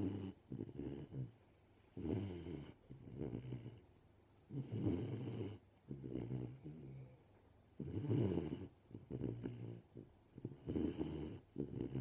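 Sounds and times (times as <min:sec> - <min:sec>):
puppy snoring: 0:00.0 - 0:07.2, 0:07.8 - 0:12.0.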